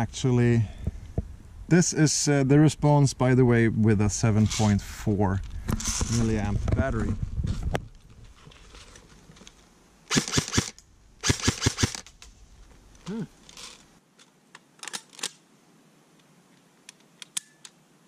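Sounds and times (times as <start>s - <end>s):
airsoft gun firing: 10.1s - 12.1s.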